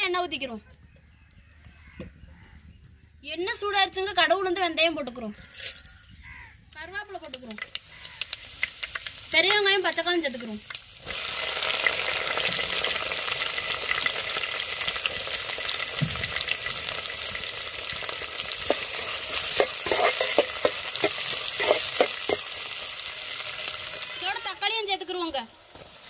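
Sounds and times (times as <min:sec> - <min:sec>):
vegetables sizzling in hot oil: 0:06.8 - 0:26.0
spatula scraping a pan: 0:18.6 - 0:22.8.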